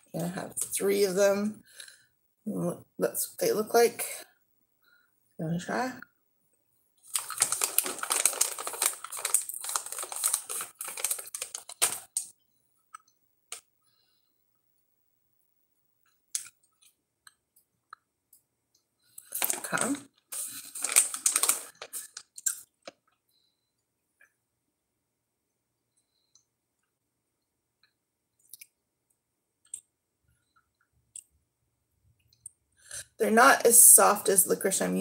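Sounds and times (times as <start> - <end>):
plastic pouch crinkling: 7.0 - 12.3, 19.2 - 23.0.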